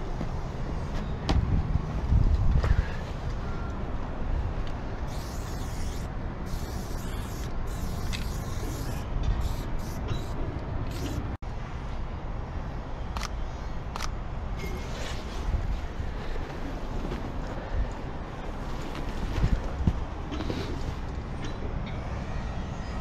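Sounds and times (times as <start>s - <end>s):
spray-paint can hissing: 5.1s - 11.2s.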